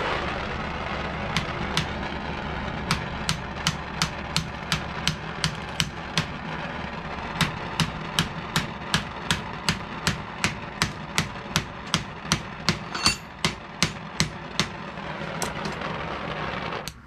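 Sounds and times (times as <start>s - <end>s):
steady rumbling noise: 0.0s - 17.0s
hammer striking metal: 2.9s - 6.3s, 7.4s - 14.8s.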